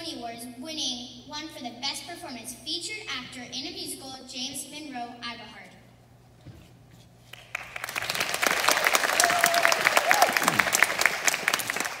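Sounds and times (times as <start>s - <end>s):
audience applauding: 7.3s - 12.0s.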